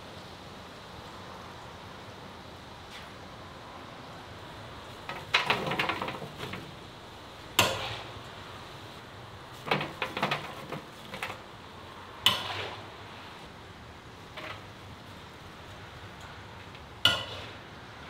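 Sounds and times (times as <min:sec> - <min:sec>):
utensils clattering against cookware: 0:05.0 - 0:06.8, 0:09.6 - 0:11.4.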